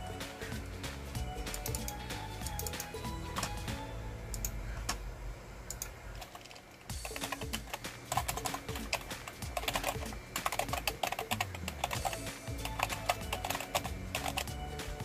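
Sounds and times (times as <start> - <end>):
background music: 0.0 - 4.8, 6.9 - 15.0
computer keyboard typing: 1.5 - 3.5, 5.7 - 14.6.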